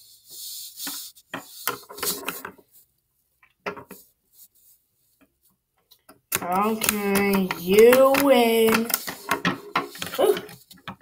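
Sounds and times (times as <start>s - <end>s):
taps and scrapes on wooden table: 0.8s - 2.6s, 6.4s - 11.0s.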